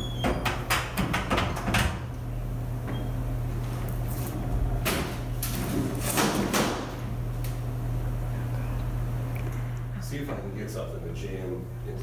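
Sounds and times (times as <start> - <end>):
door knocking and rattling: 0.2 - 2.1
low hum: 7.0 - 12.0.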